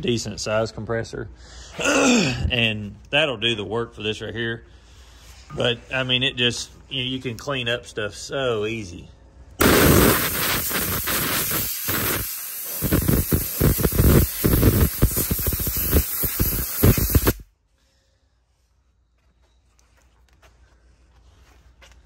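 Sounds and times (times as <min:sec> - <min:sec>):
air blow gun hissing bursts: 0:09.6 - 0:17.5.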